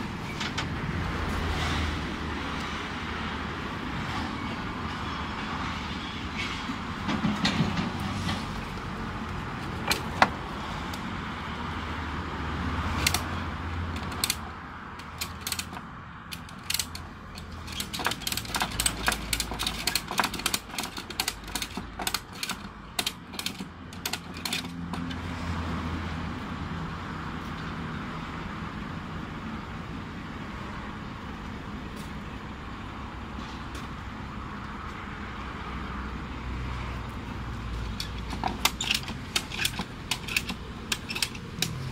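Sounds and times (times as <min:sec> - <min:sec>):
ratchet strap clicking: 0:13.0 - 0:25.2, 0:37.9 - 0:41.9.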